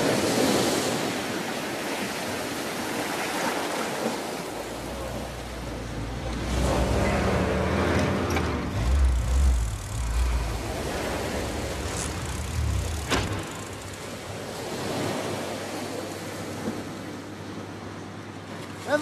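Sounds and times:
waves washing on shore: 0.0s - 19.0s
jeep engine rumbling: 4.6s - 14.8s.

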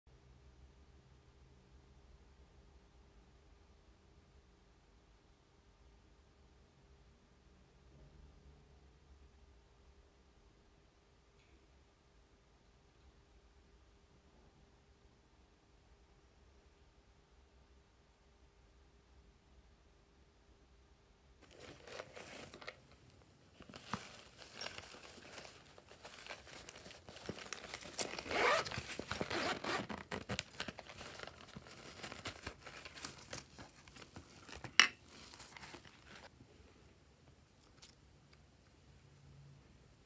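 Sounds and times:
plastic case rattling and scraping: 21.4s - 23.0s, 23.6s - 36.3s
zipper being opened: 21.4s - 36.3s.

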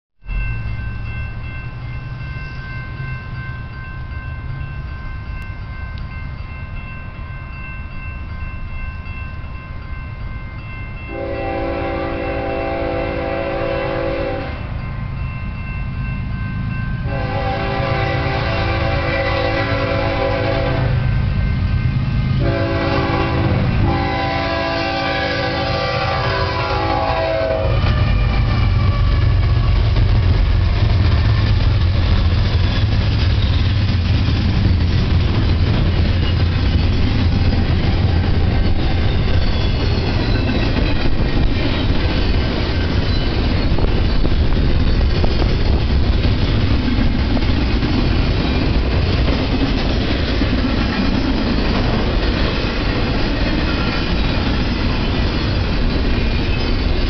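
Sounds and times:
crossing bell ringing: 0.2s - 57.0s
freight train rumble: 0.2s - 57.0s
locomotive air horn blasts: 11.1s - 14.7s, 17.1s - 21.1s, 22.4s - 29.1s.

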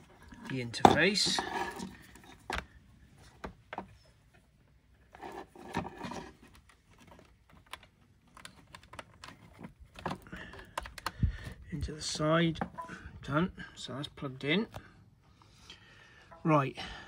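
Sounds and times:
cable rustling: 0.0s - 11.9s.

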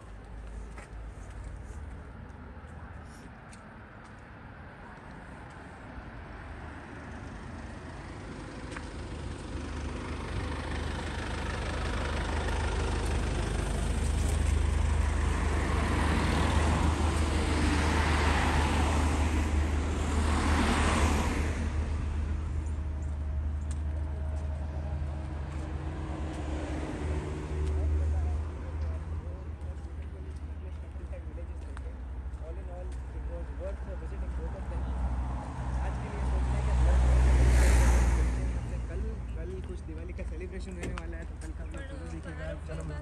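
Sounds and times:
vehicle passing by: 6.2s - 31.6s, 32.4s - 40.6s.

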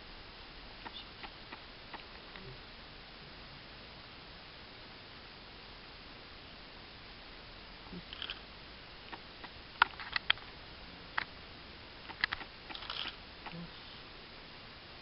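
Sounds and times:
faint steady hiss: 0.0s - 15.0s
sharp clicks and ticks: 0.8s - 2.5s, 9.1s - 10.5s, 12.0s - 13.6s.

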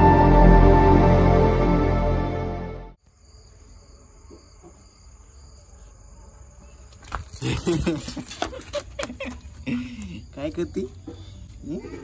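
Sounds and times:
background music: 0.0s - 3.0s
crickets trilling: 3.0s - 12.0s.

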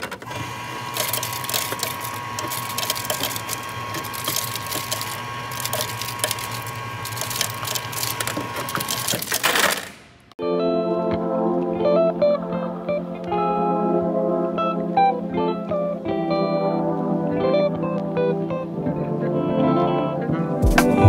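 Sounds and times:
ice dispenser whirring: 0.0s - 10.0s
ice cubes clattering into metal cup: 0.9s - 9.9s.

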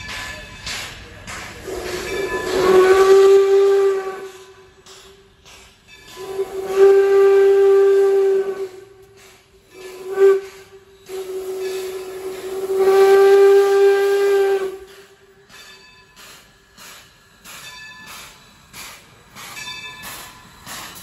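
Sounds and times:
steam locomotive whistle: 1.6s - 4.8s, 6.0s - 15.3s.

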